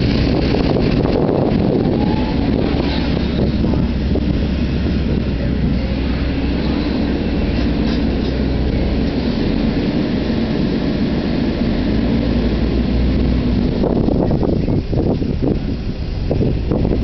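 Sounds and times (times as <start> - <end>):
excavator diesel engine running: 0.0 - 17.0.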